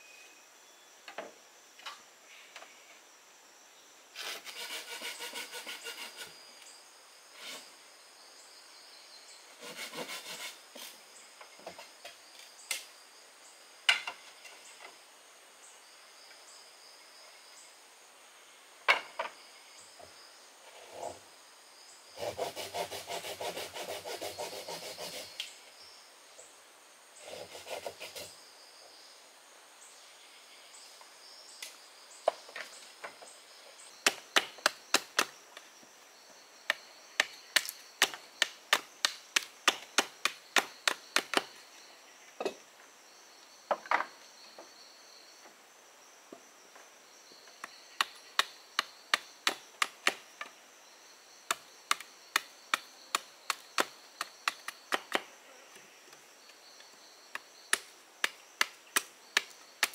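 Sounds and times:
insects singing: 0:01.7 - 0:15.0, 0:18.9 - 0:26.5, 0:29.8 - 0:59.9
knife chopping bamboo: 0:37.2 - 0:41.5.

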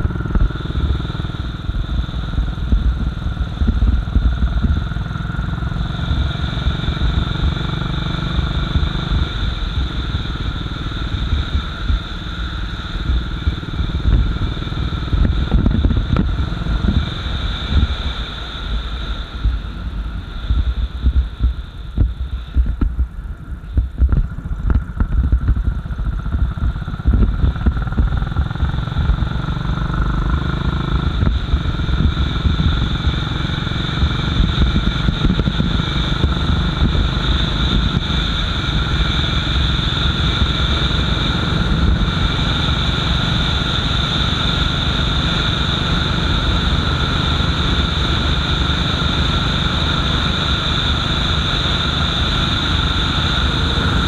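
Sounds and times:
motorcycle engine running: 0:00.0 - 0:54.0
rushing wind noise: 0:00.0 - 0:54.0.

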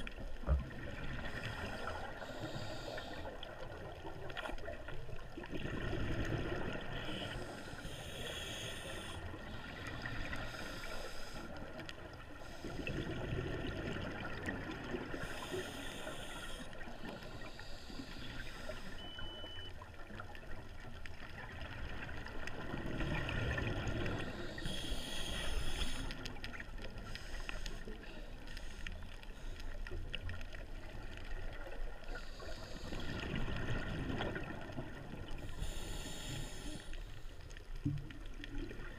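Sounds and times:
exhale bubbles underwater: 0:00.0 - 0:19.7, 0:20.3 - 0:28.2, 0:30.1 - 0:36.8, 0:37.8 - 0:38.9
regulator hiss on inhale: 0:01.3 - 0:03.5, 0:06.9 - 0:13.0, 0:15.1 - 0:19.2, 0:24.1 - 0:30.0, 0:32.1 - 0:33.3, 0:35.4 - 0:37.5.

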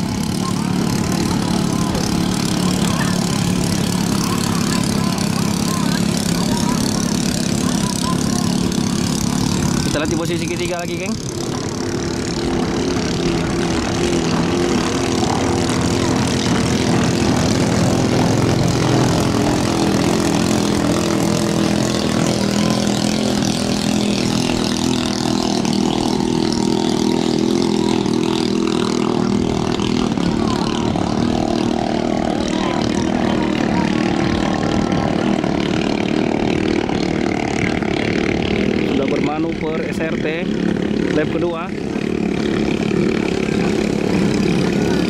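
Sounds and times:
racing boat engine droning: 0:00.0 - 0:45.0.

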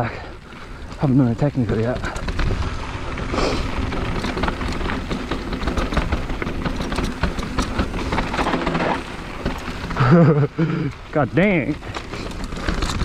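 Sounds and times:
bike rattling and clattering: 0:00.0 - 0:13.0
tyres crunching on dirt: 0:00.0 - 0:13.0
wind buffeting microphone: 0:00.8 - 0:08.6.

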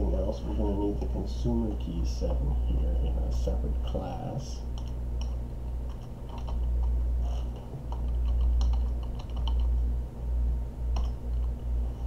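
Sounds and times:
steady low hum: 0:00.0 - 0:12.0
keyboard typing clicks: 0:04.8 - 0:07.0, 0:07.9 - 0:09.7.

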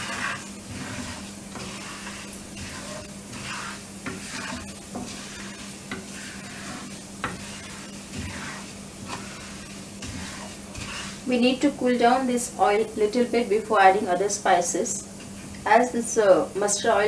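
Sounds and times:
wooden spatula scraping a pan: 0:00.0 - 0:12.2
seeds sizzling in hot oil: 0:00.0 - 0:17.0.

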